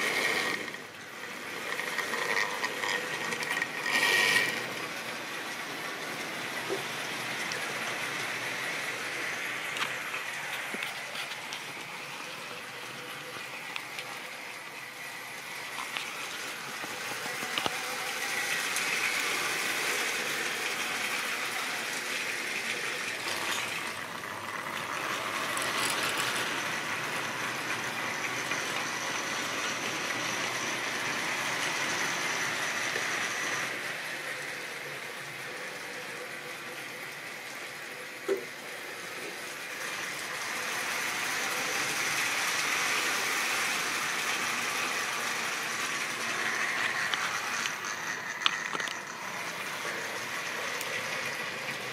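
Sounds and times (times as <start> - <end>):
model trains rattling on track: 0.0 - 51.9.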